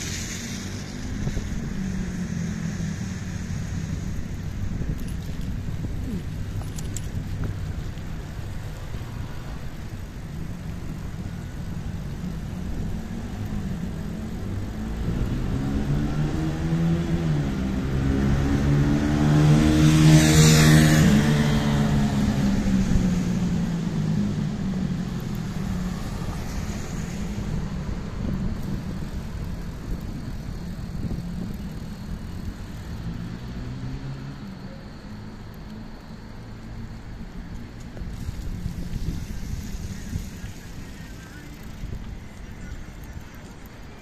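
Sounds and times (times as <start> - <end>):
tyres hissing on wet road: 0.0 - 44.0
wind and road noise: 0.0 - 44.0.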